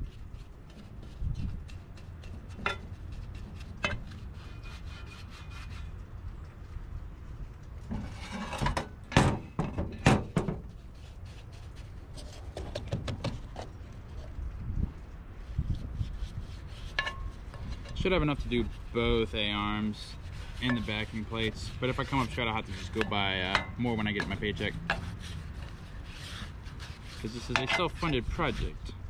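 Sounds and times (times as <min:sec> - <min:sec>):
brush bristles scraping metal: 0:00.0 - 0:06.2, 0:07.8 - 0:09.5, 0:15.4 - 0:29.0.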